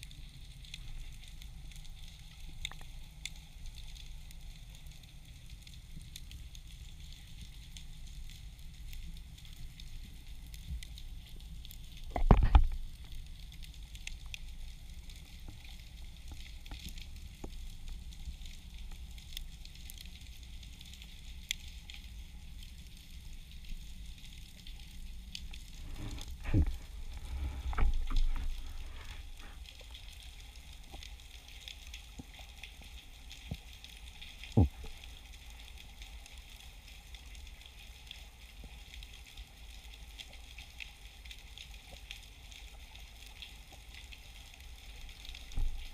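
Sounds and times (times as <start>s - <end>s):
snapping shrimp crackle underwater: 0.0s - 45.9s
dull low knocks: 25.8s - 29.3s.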